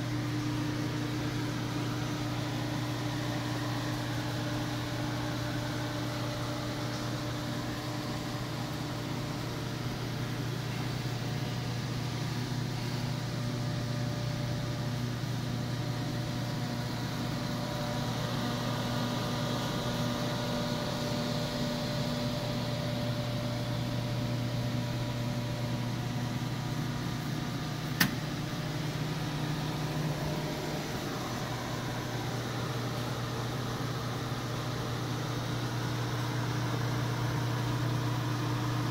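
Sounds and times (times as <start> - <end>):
oven fans and motors humming: 0.0 - 38.9
sharp click: 28.0 - 28.2.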